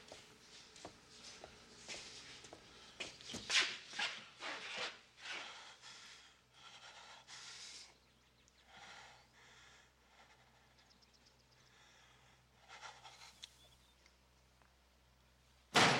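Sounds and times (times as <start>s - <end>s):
man breathing heavily: 1.1s - 3.2s, 5.2s - 13.5s.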